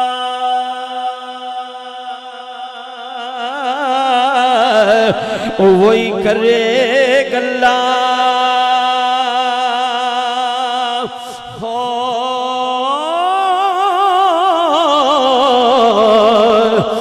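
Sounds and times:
man singing with vibrato: 0.0 - 17.0.

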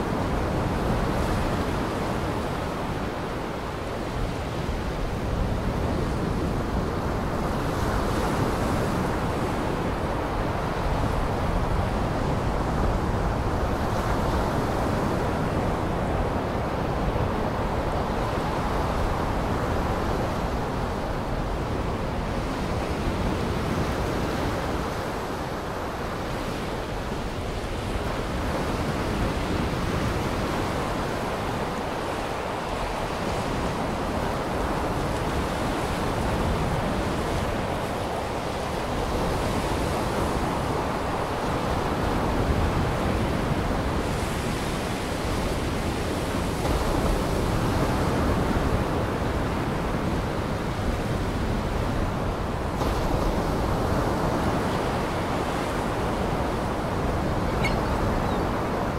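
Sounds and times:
waves rushing: 13.2 - 58.9.

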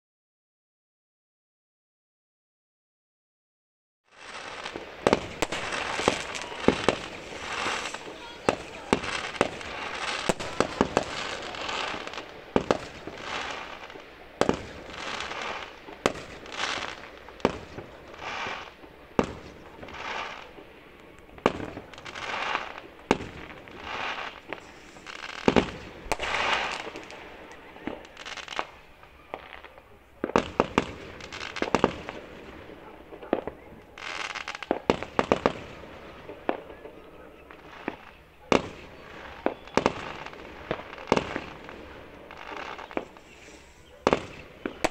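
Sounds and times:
firework bangs: 4.1 - 44.9
crackling of bursting shells: 4.2 - 27.2.

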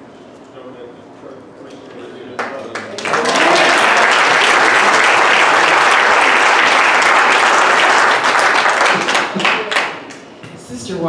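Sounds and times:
crowd clapping: 2.4 - 10.4.

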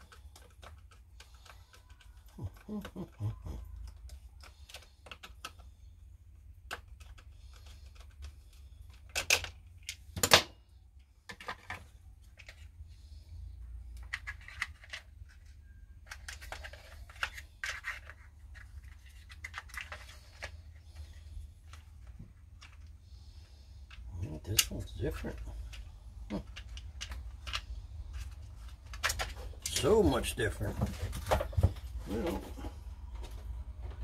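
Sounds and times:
rustling and scraping: 11.2 - 34.0.

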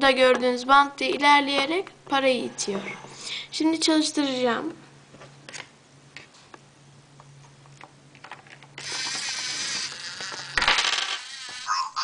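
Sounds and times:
servo motor whirring: 8.8 - 11.8.

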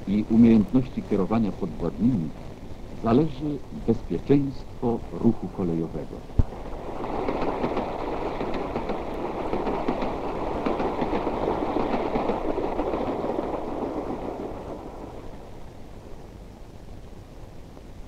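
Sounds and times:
freight train rolling past: 3.0 - 15.8
wheels clattering over rails: 6.6 - 15.5.

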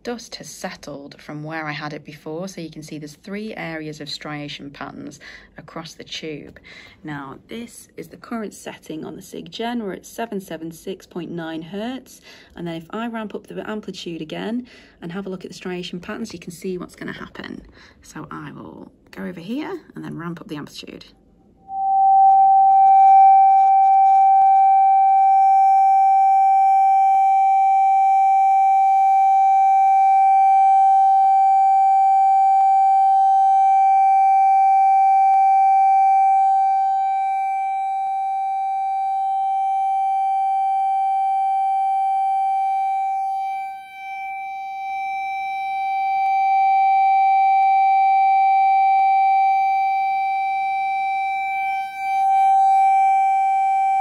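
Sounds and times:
loud steady pure tone: 20.2 - 54.0.

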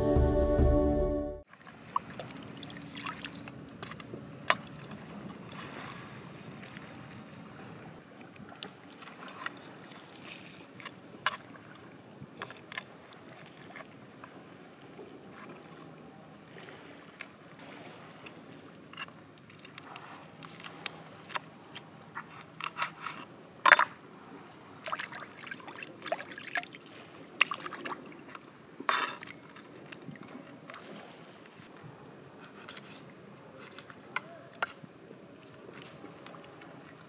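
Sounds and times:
water dripping and trickling: 1.8 - 4.0.

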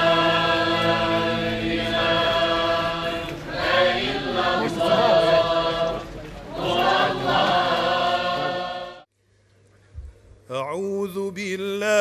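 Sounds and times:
voices chanting: 0.0 - 9.1.

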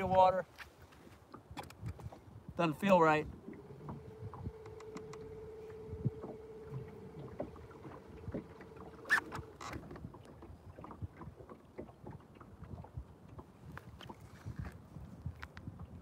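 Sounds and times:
water splashing against boat hull: 0.0 - 16.0
electric trolling motor humming: 3.3 - 10.2.

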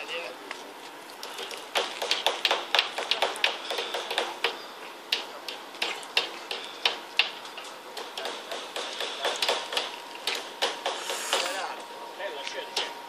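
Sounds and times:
sharp taps and clicks of fishing gear: 1.1 - 11.5.

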